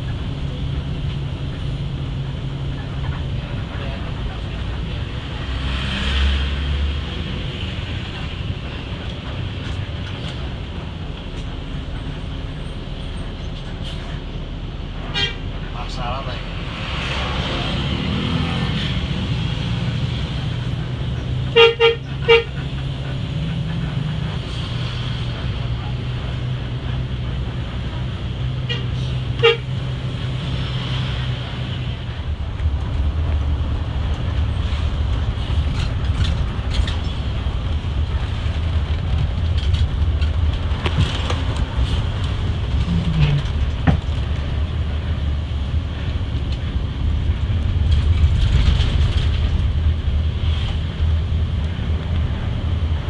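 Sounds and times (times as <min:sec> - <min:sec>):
bus diesel engine drone: 0:00.0 - 0:53.0
road noise: 0:00.0 - 0:53.0
horn toot: 0:21.5 - 0:22.6, 0:28.6 - 0:29.8.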